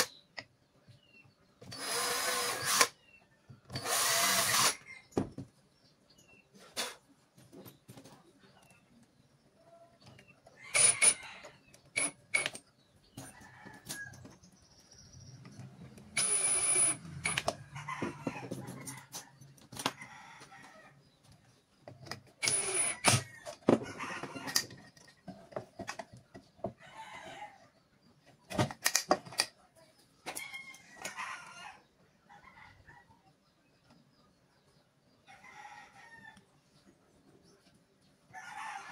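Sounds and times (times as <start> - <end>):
cordless driver driving screws: 1.6 - 3.0, 3.7 - 4.8, 10.7 - 11.2, 12.0 - 12.6, 16.2 - 17.6, 22.4 - 23.3.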